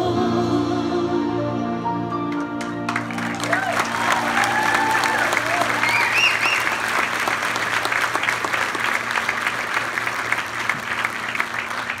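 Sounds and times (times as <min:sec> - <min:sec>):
audience applauding: 0:02.3 - 0:12.0
whistle: 0:05.8 - 0:06.8.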